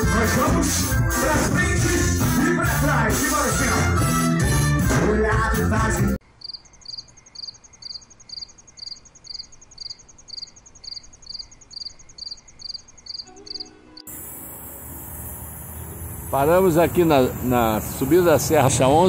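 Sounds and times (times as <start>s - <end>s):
insect chirping: 6.2s - 18.6s
road traffic hum: 6.2s - 19.0s
faint high buzz: 13.3s - 18.6s.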